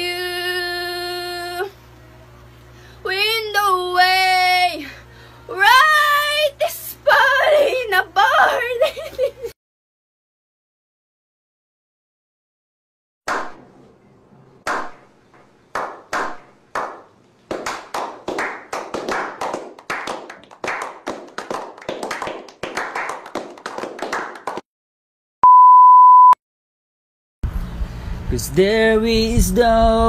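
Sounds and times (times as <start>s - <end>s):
group of men clapping: 14.7s - 15.0s, 15.7s - 24.7s
man clapping slowly: 14.7s - 15.0s, 15.7s - 24.6s
high test tone beep: 25.4s - 26.4s.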